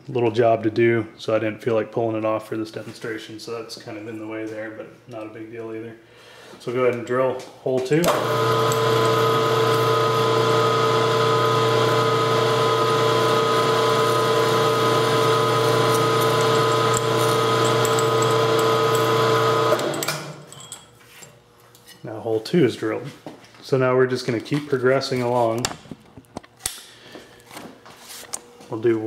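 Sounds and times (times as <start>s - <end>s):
milling machine drilling metal: 8.0s - 20.5s.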